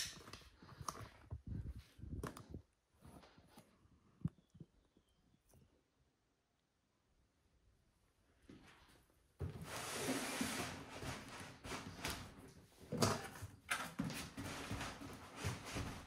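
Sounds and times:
cardboard scraping slide: 9.4 - 12.2.

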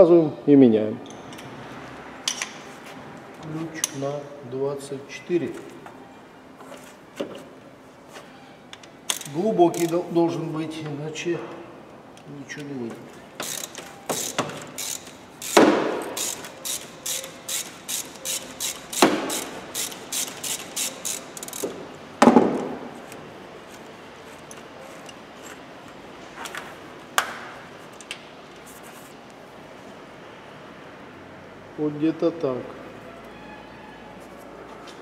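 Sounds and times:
ratchet wrench clicking: 8.8 - 10.1, 13.4 - 21.8.

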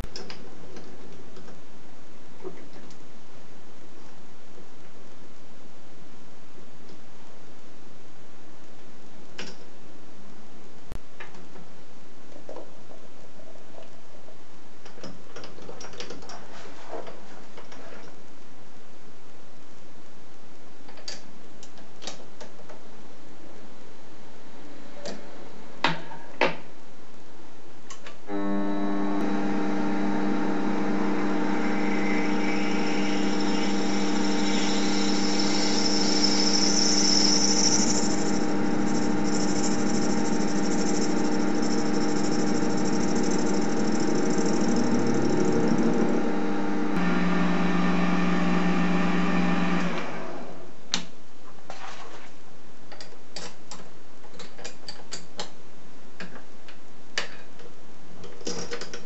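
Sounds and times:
lathe whine: 28.3 - 50.5.

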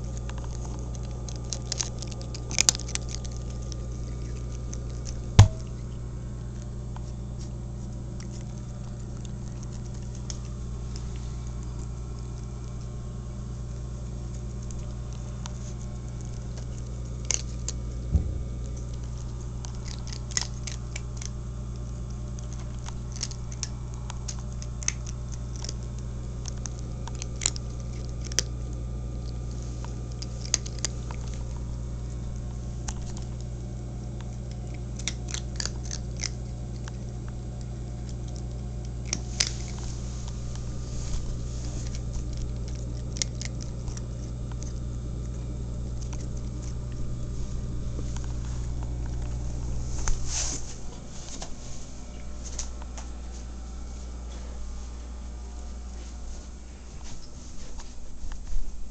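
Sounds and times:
cat crunching kibble: 0.0 - 58.9
low hum: 0.0 - 58.9
sharp knock: 5.4 - 5.6.

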